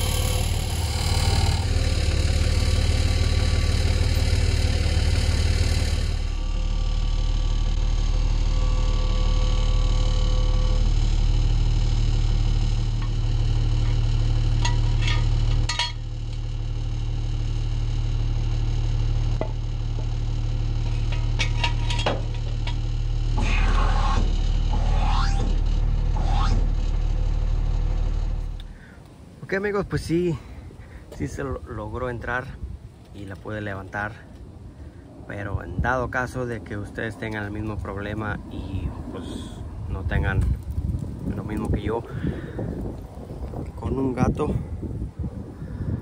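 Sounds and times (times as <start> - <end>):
engine idling: 0.0 - 29.1
sharp metallic clinks and knocks: 13.8 - 16.1, 20.8 - 22.9.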